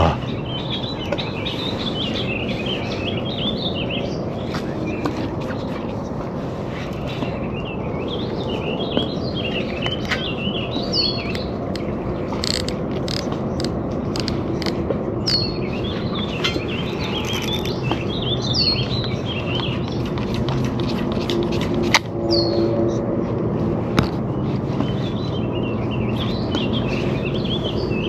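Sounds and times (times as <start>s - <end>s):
songbird singing: 0.0s - 5.8s, 6.8s - 20.4s, 24.3s - 28.0s
sharp clicks: 11.2s - 14.8s.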